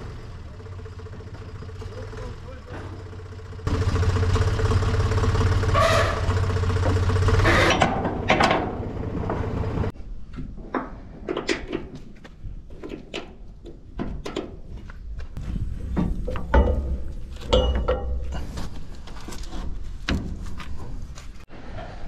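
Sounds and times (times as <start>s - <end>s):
engine running: 0.0s - 9.9s
sharp knocks and clanks: 5.7s - 21.0s.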